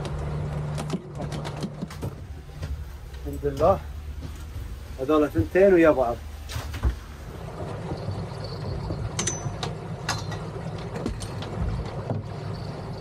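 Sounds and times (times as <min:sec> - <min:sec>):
sharp clicks and knocks: 0:00.0 - 0:04.4, 0:08.8 - 0:12.4
boat motor running: 0:00.0 - 0:13.0.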